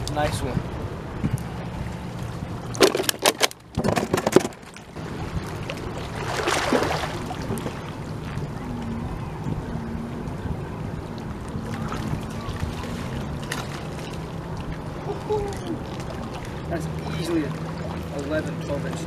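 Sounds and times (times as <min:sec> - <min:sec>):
wind on microphone: 0:00.0 - 0:02.7, 0:05.0 - 0:16.3
waves lapping against rocks: 0:02.2 - 0:10.4, 0:11.0 - 0:19.0.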